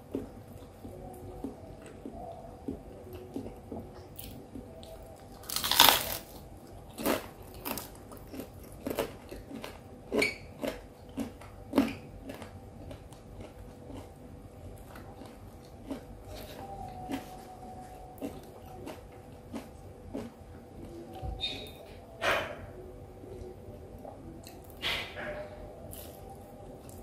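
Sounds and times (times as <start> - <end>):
chewing crunches and smacks: 0.0 - 21.8
crunchy bite: 5.4 - 12.5.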